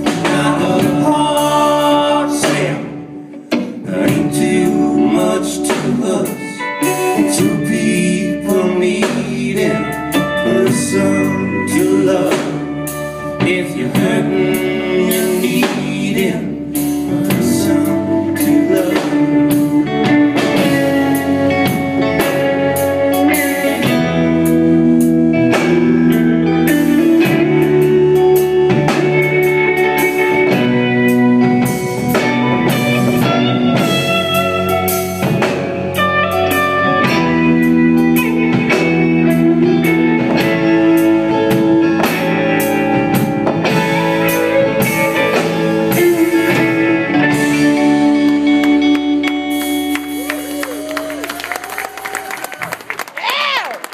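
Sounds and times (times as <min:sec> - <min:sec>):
drum kit beat: 0:00.0 - 0:53.9
electric guitars: 0:00.0 - 0:53.9.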